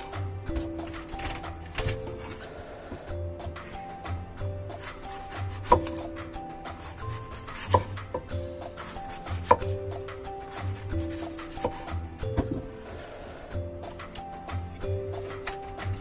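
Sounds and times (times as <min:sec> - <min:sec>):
background music: 0:00.0 - 0:16.0
cleaver slicing apples: 0:04.7 - 0:13.1.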